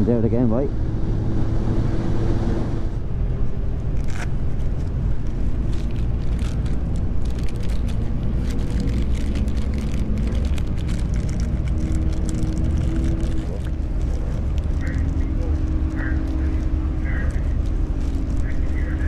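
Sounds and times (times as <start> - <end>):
motorcycle engine running: 4.4 - 19.0.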